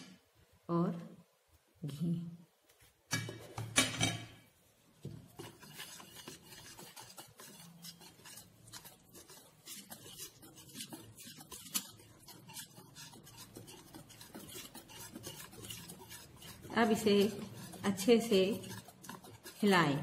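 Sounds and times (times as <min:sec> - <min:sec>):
whisk scraping batter in bowl: 0:04.8 - 0:20.0
whisk tapping bowl: 0:05.0 - 0:20.0.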